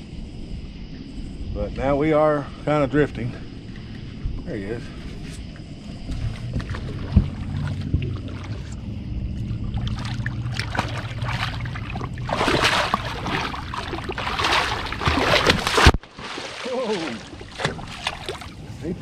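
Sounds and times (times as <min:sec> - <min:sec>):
low steady hum: 0:00.0 - 0:19.0
fish thrashing and splashing: 0:06.2 - 0:08.8, 0:09.4 - 0:18.6.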